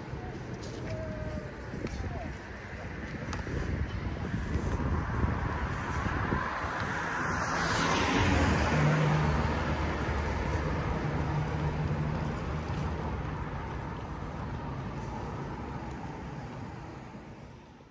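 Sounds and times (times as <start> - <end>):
motor vehicle passing: 3.5 - 17.3.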